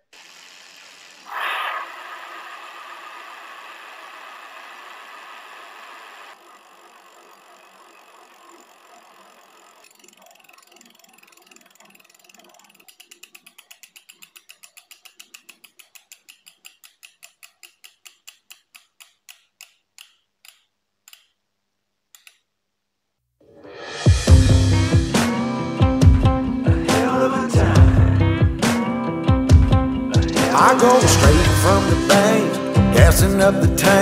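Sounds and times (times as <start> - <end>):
bicycle freehub clicking: 0.0 - 21.4, 22.1 - 22.5.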